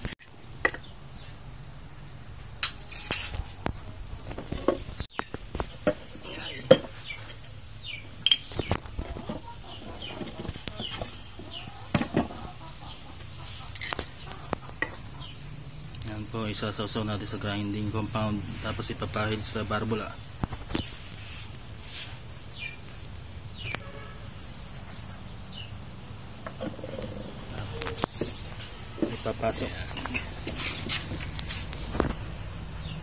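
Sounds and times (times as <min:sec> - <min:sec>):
bird calls: 0:04.3 - 0:15.6, 0:18.8 - 0:33.0.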